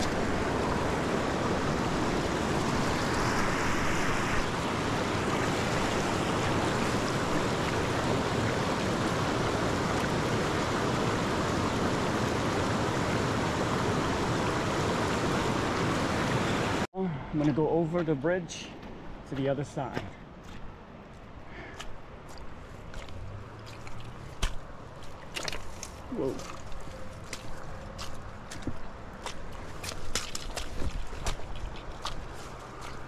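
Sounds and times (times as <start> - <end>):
river water rushing over rocks: 0.0 - 16.9.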